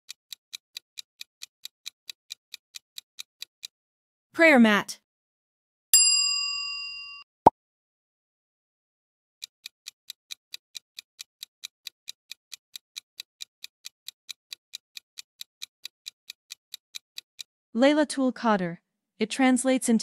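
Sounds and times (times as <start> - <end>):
fast clock ticking: 0.1 - 3.7, 9.4 - 17.5.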